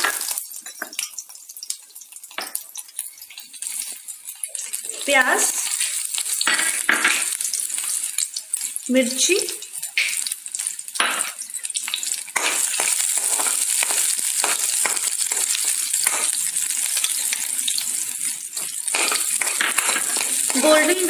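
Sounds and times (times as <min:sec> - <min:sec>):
onion sizzling in hot oil: 0:00.0 - 0:21.0
metal spatula scraping pan: 0:18.6 - 0:21.0.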